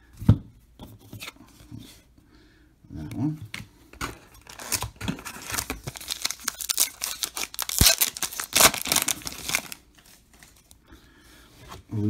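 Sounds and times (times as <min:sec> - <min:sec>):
foil wrapper crinkling and ripping: 0:04.4 - 0:10.8.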